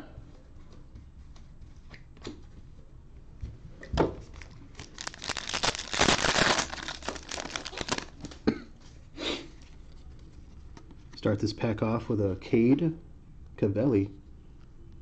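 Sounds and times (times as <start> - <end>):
foil wrapper tearing and crinkling: 4.3 - 8.4.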